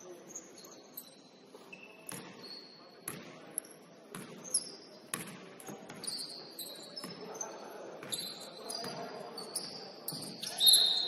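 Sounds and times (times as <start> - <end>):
sneakers squeaking: 0.0 - 11.0
basketball bouncing: 3.0 - 3.4, 4.1 - 4.4, 5.1 - 6.1.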